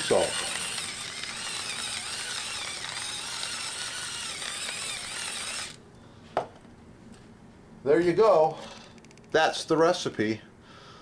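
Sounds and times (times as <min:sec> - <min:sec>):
salt mill grinding: 0:00.0 - 0:05.8.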